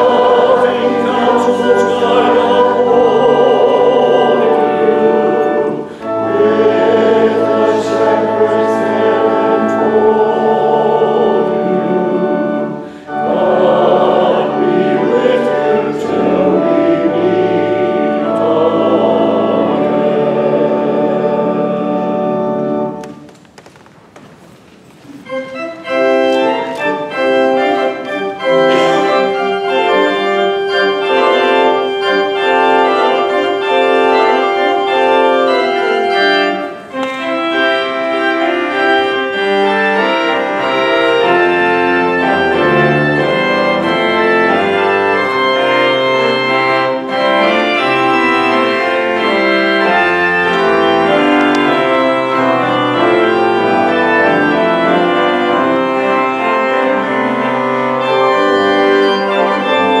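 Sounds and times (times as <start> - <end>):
low organ pedal bass notes: 0.0 - 23.1, 37.2 - 60.0
pipe organ playing: 0.0 - 23.8, 25.0 - 60.0.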